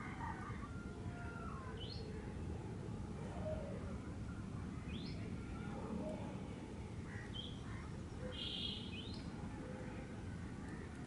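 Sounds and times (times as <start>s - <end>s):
birds calling: 7.1s - 9.3s
buzzy bird call: 8.3s - 9.2s.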